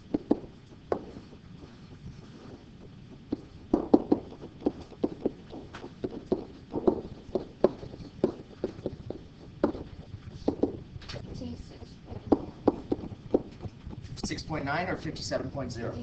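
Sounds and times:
pen tapping on whiteboard: 0.1s - 2.6s, 3.3s - 10.8s, 12.1s - 14.0s.

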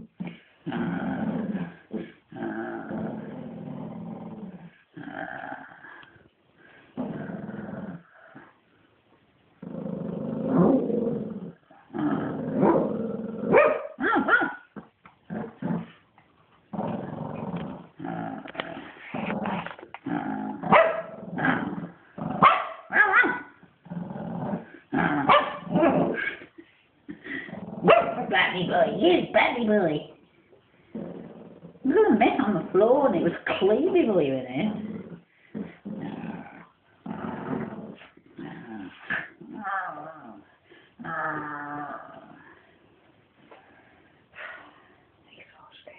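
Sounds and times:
dog growling: 0.0s - 8.6s, 9.6s - 16.0s, 16.7s - 28.4s, 30.9s - 42.6s
dog barking: 13.5s - 14.6s, 20.7s - 21.1s, 22.4s - 23.5s, 25.3s - 25.7s, 27.9s - 28.3s.

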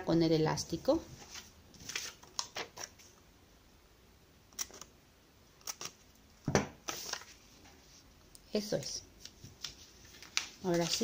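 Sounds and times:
paper rustling and crinkling: 1.2s - 3.1s, 6.8s - 8.0s, 9.2s - 11.0s.

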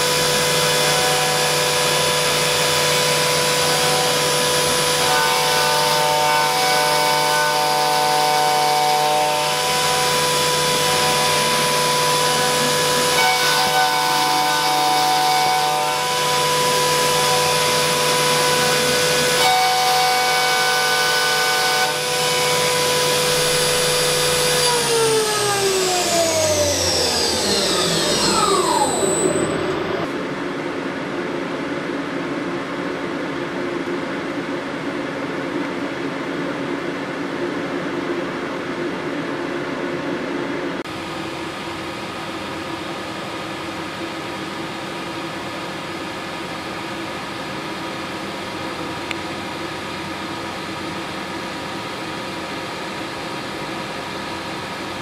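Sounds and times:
milling machine spindle whine: 0.0s - 30.4s
steady machine hum: 0.0s - 55.0s.

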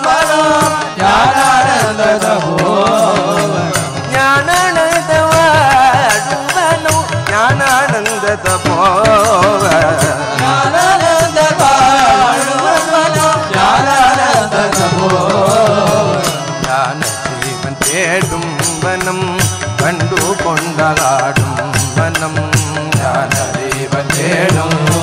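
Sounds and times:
devotional melody: 0.0s - 25.0s.

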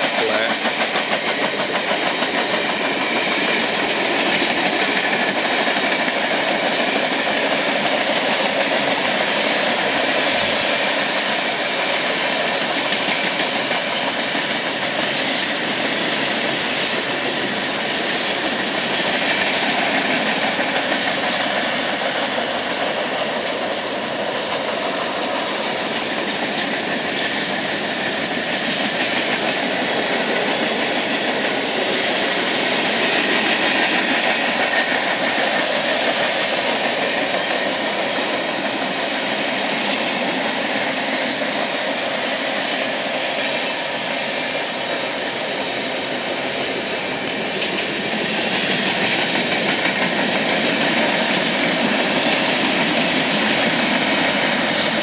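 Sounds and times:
train cars clanking: 0.0s - 55.0s
train wheels rolling on rails: 0.0s - 55.0s.

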